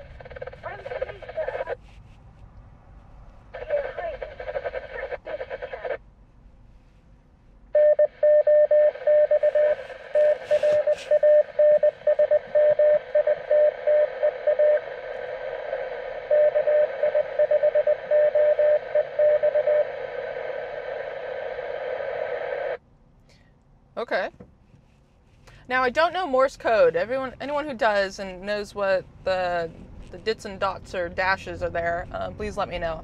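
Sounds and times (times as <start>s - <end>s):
radio hiss: 0.0s - 1.8s, 3.5s - 6.0s, 9.3s - 12.1s
morse code tone: 7.8s - 14.9s, 16.3s - 19.9s.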